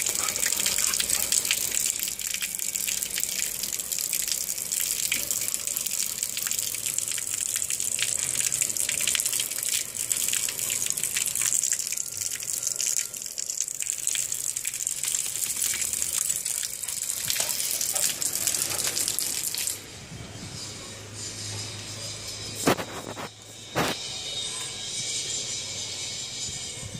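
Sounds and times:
rain falling on concrete: 0:00.0 - 0:19.8.

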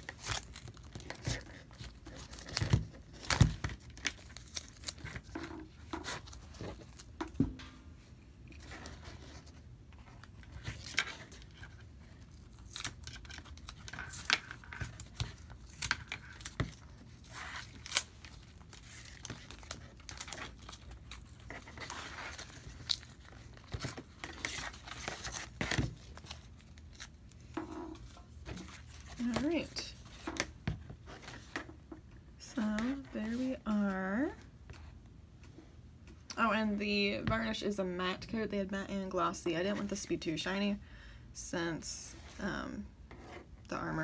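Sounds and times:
mask handling taps and rustles: 0:00.8 - 0:09.4.

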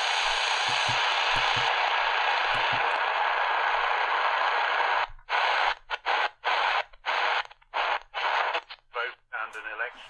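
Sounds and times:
radio static hiss: 0:00.0 - 0:10.0.

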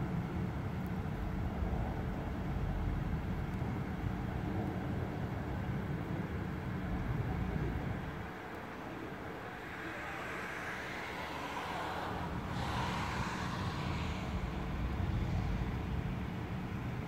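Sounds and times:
low traffic rumble: 0:00.0 - 0:17.0
vehicle passing: 0:08.6 - 0:17.0.

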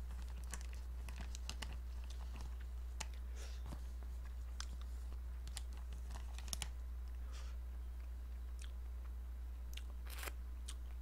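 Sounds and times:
packet crinkling: 0:00.0 - 0:06.8
steady low hum: 0:00.0 - 0:11.0.

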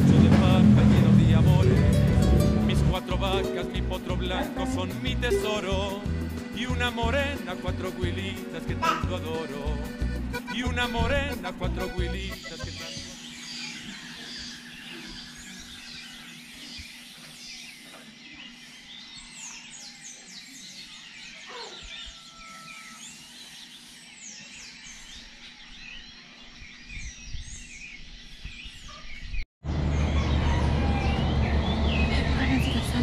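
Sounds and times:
low rumble: 0:00.0 - 0:05.9
birds chirping and whistling: 0:05.0 - 0:33.0.

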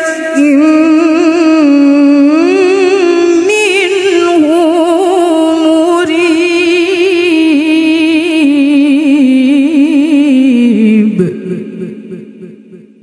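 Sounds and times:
woman reciting melodically: 0:00.0 - 0:12.9.

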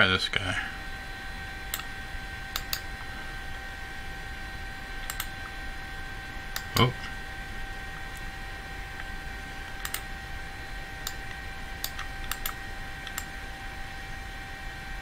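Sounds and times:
high whine and hiss: 0:00.0 - 0:15.0
computer mouse clicking: 0:01.7 - 0:01.9, 0:02.5 - 0:02.9, 0:05.0 - 0:05.4, 0:09.0 - 0:10.1, 0:11.0 - 0:13.3.

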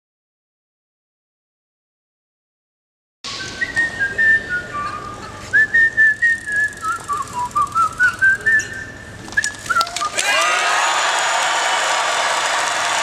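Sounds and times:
person whistling a tune: 0:03.3 - 0:10.2
murmur of large crowd: 0:03.4 - 0:13.0.

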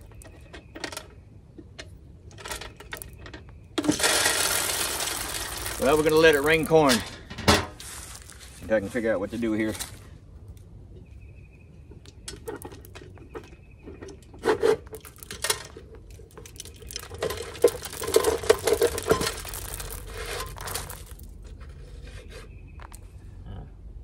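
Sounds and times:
corn kernels pattering and rattling: 0:02.3 - 0:10.1, 0:14.3 - 0:21.8.

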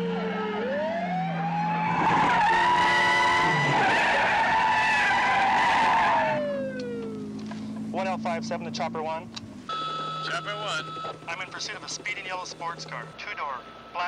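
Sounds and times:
police siren wailing: 0:00.0 - 0:07.5.

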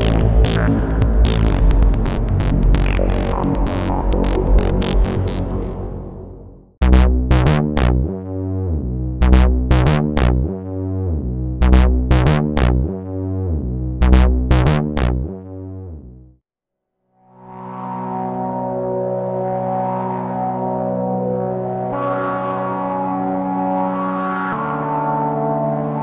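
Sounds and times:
synthesizer playing low riff: 0:00.0 - 0:16.2.

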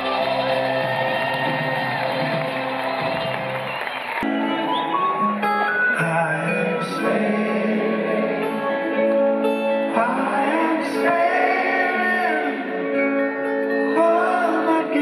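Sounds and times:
acoustic guitar: 0:00.0 - 0:15.0
live rock band playing: 0:00.0 - 0:15.0
person singing: 0:05.2 - 0:15.0.

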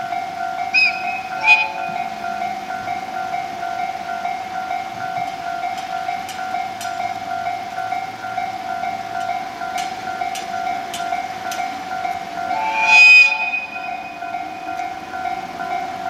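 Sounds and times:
level-crossing alarm ringing: 0:00.0 - 0:16.0
faint clicks: 0:05.2 - 0:07.1.

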